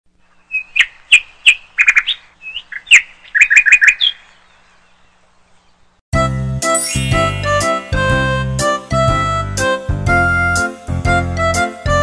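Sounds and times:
small bird chirping: 0.2 - 6.0.

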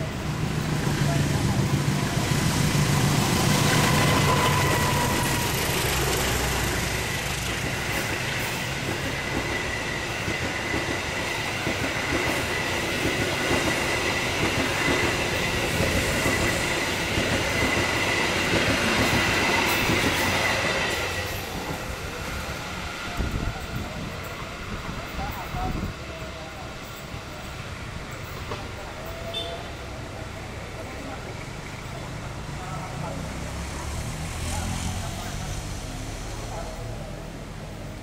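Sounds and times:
diesel locomotive engine rumble: 0.0 - 38.0
train wheels on rail: 0.0 - 38.0
high-pitched wheel squeal: 3.5 - 6.4.

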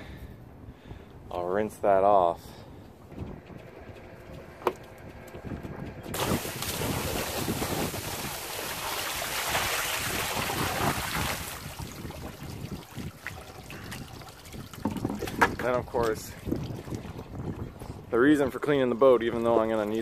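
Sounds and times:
water splashing from bucket: 6.1 - 17.7.

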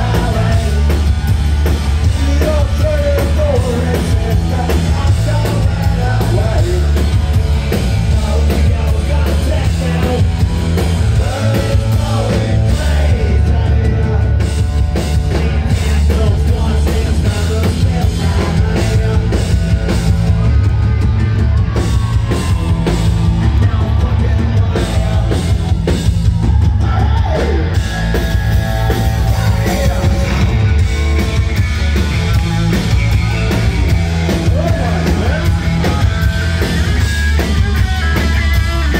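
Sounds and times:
person singing: 0.0 - 1.1, 15.3 - 19.7
punk rock band playing: 0.0 - 38.9.

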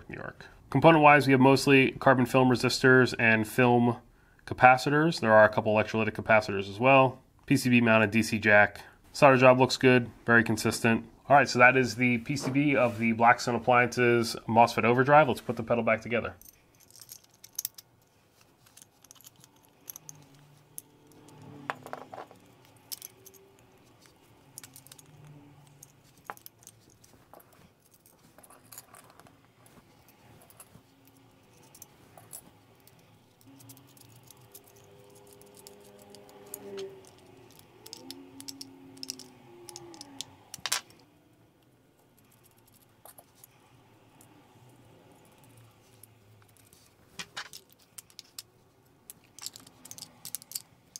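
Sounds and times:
clicks and rattles of small parts: 16.4 - 41.0, 42.0 - 43.6, 45.0 - 50.9.

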